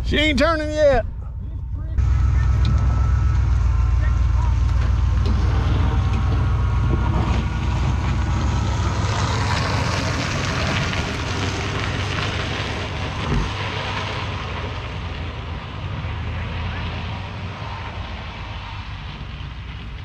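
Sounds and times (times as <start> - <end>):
truck engine pulling away: 1.1 - 20.0
wheel scraping on road: 2.0 - 20.0
thump: 13.2 - 13.6.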